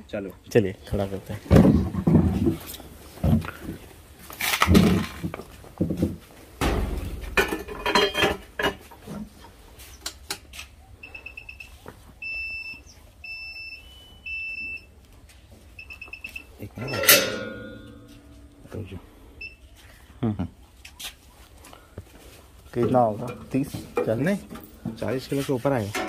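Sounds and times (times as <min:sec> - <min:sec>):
knocks and shuffling: 0:00.6 - 0:13.2, 0:13.8 - 0:26.0
scale beeping: 0:15.8 - 0:18.6.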